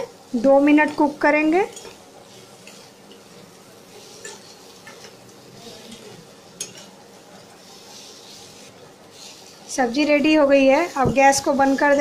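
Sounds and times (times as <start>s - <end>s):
faint frying hiss: 0.0s - 12.0s
spatula scraping steel pan: 4.1s - 5.1s, 7.8s - 12.0s
spatula tapping pan: 10.8s - 12.0s.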